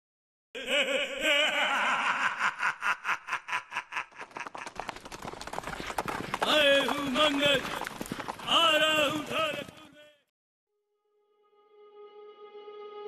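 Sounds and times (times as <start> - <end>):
person laughing: 0.6 - 4.9.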